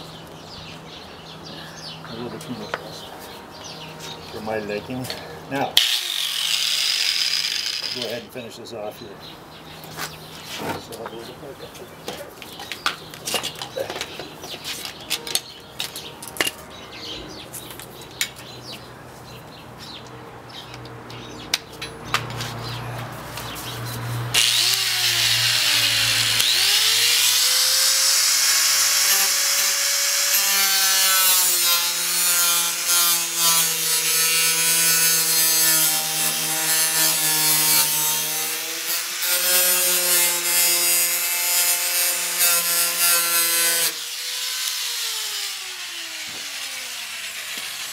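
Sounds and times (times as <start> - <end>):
angle grinder cutting: 5.8 - 8.2, 24.3 - 47.9.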